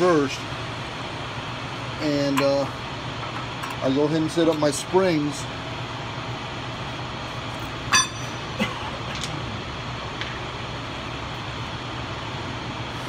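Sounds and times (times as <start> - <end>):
low background hum: 0.0 - 13.0
metal-on-metal clink: 7.9 - 8.4.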